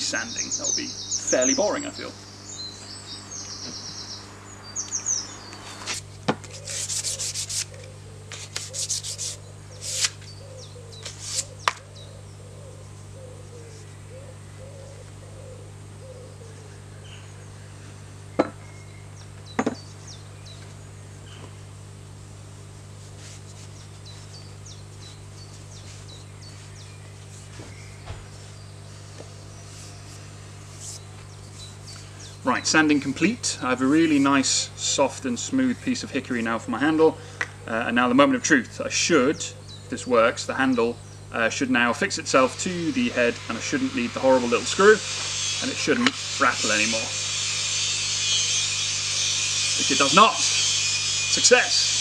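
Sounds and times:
sandpaper rasping on wood: 0:05.9 - 0:10.3, 0:11.0 - 0:11.6, 0:23.0 - 0:24.4, 0:29.6 - 0:31.1, 0:42.4 - 0:52.0.

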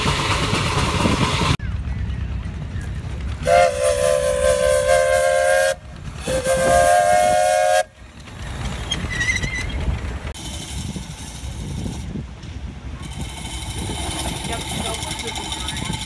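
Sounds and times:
steam whistle blasts: 0:03.4 - 0:08.0.

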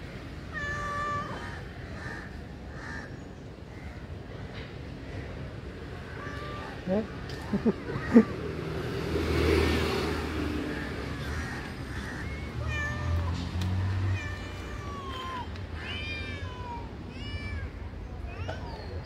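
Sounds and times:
kittens mewing: 0:05.9 - 0:08.7, 0:10.7 - 0:19.0.

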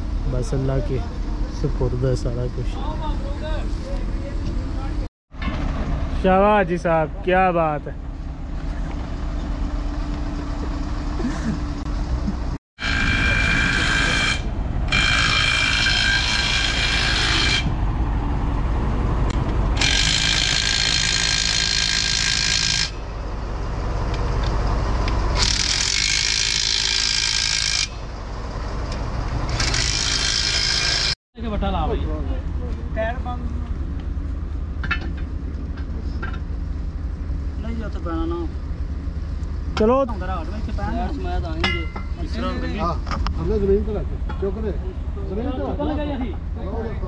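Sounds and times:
heavy machinery running: 0:00.0 - 0:44.7
high metallic squealing: 0:12.8 - 0:17.7.

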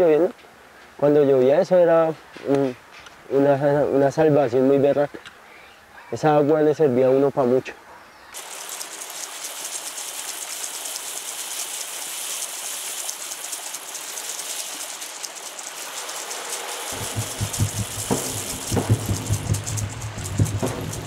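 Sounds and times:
water rushing down cascade: 0:08.4 - 0:21.0
music with low pulsing beat: 0:16.9 - 0:21.0.

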